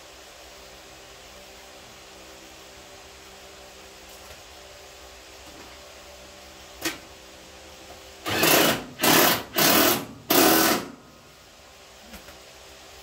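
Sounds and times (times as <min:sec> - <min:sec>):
power tool driving bolts: 0:08.2 - 0:11.0.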